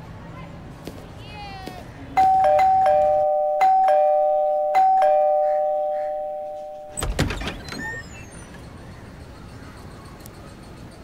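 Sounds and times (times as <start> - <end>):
two-tone doorbell chime: 2.2 - 7.0
front door unlatching and opening: 6.8 - 8.3.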